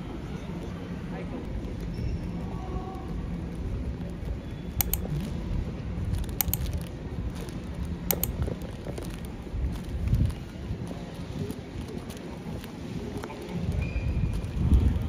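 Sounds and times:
sharp clicks: 4.8s - 5.1s, 6.3s - 6.8s, 8.1s - 8.4s.

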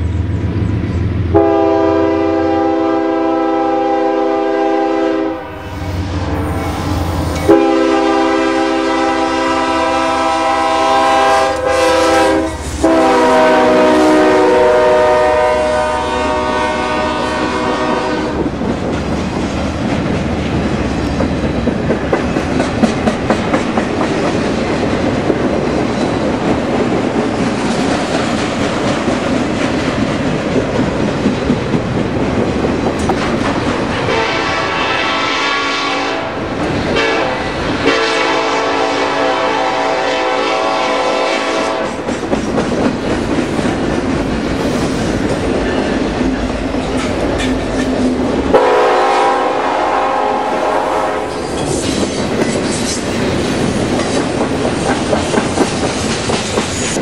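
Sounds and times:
locomotive air horn blasts: 1.3s - 5.8s, 7.4s - 18.4s, 34.0s - 42.0s, 48.5s - 51.4s
train wheels clicking over rail joints: 18.4s - 34.1s, 41.8s - 48.5s, 51.3s - 57.0s.

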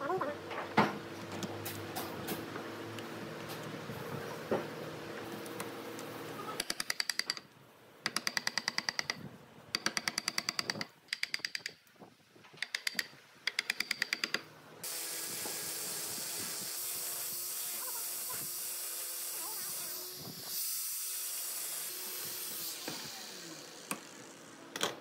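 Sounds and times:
power chisel hammering wood: 6.6s - 7.4s, 8.0s - 9.2s, 9.8s - 11.7s, 12.7s - 14.4s
sanding drum whirring: 14.8s - 24.7s
power tool humming: 14.8s - 24.8s.

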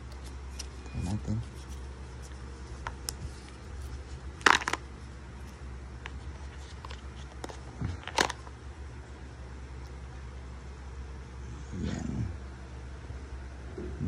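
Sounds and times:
plastic film crinkling: 1.5s - 4.9s.

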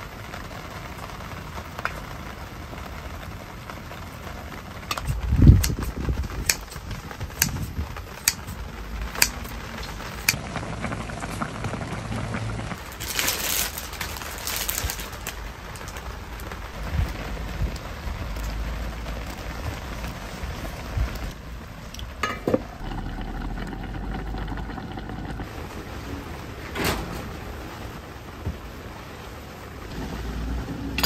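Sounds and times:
rain falling: 0.0s - 31.0s
plastic wrapper crinkling: 12.8s - 16.7s.

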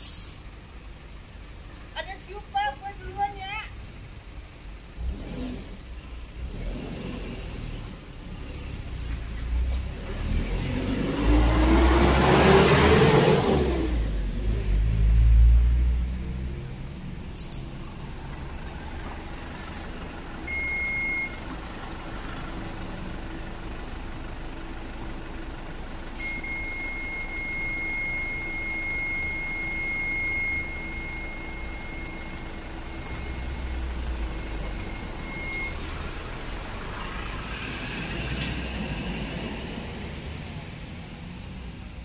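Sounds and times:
van engine running: 0.0s - 42.0s
high-pitched warning beep: 20.5s - 21.4s, 26.2s - 36.0s.

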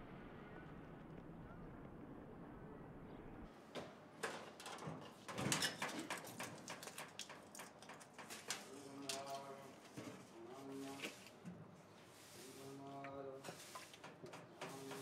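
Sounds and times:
low ambient rumble: 0.0s - 3.6s
rusty metal door rattling: 4.2s - 8.7s.

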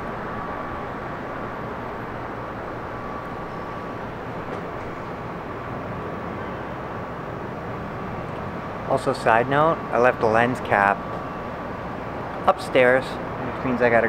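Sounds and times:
faint high hum: 0.0s - 14.0s.

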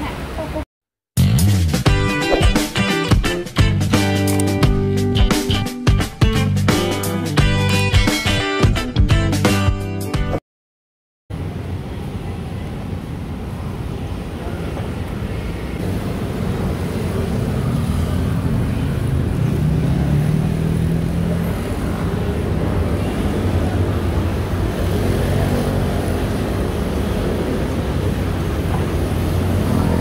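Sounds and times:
scooters and cars passing: 11.4s - 30.0s
passing engine hum: 16.8s - 30.0s.

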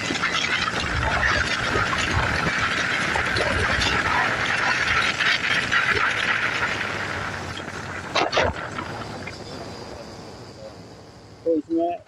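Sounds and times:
wind and road noise hiss: 0.0s - 12.0s.

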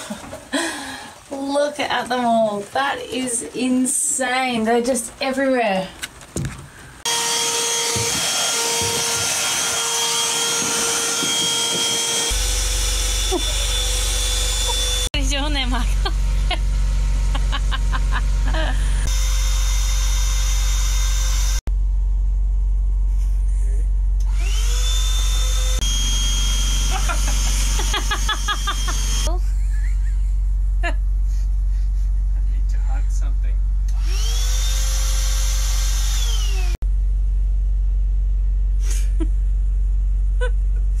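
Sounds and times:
cordless vacuum motor hum: 7.1s - 15.1s, 24.2s - 29.3s, 33.9s - 36.8s
low steady rumble: 15.1s - 19.1s, 21.7s - 24.6s, 29.2s - 34.0s, 36.8s - 41.0s.

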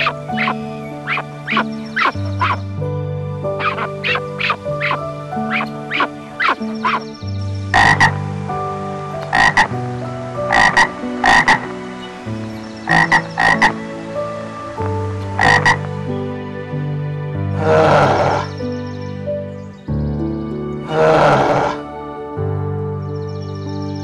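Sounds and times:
frog croaking: 0.0s - 2.7s, 3.5s - 14.1s, 14.7s - 16.0s, 17.6s - 18.6s.

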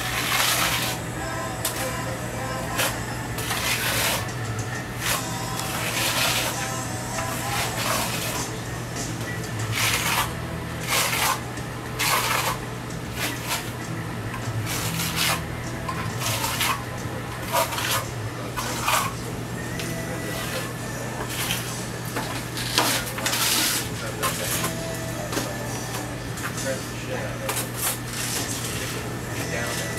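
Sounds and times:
trowel scraping wet plaster: 0.0s - 1.0s, 2.7s - 4.3s, 5.0s - 6.6s, 7.3s - 8.5s, 9.7s - 11.4s, 12.0s - 12.6s, 14.6s - 15.4s, 16.2s - 16.8s, 17.4s - 19.2s, 22.6s - 24.6s
steady low hum: 0.0s - 29.9s.

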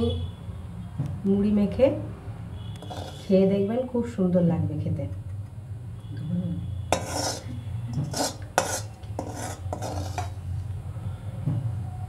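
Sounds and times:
ladle scraping steel bowl: 2.8s - 3.4s, 6.9s - 10.5s.

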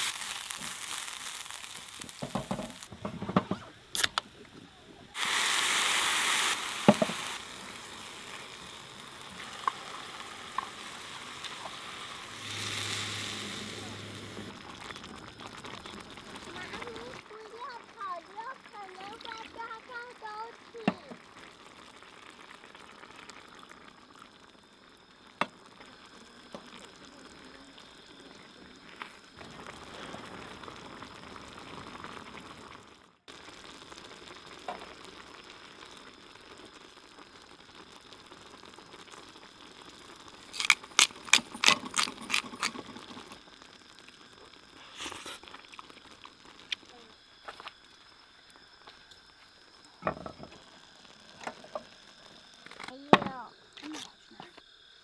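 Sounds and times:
risotto bubbling in a pan: 0.0s - 55.0s.

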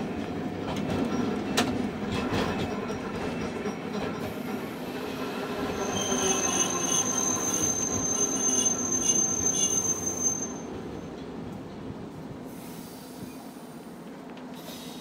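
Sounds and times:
tram running rumble: 0.0s - 15.0s
tram wheels squealing: 0.8s - 11.1s.

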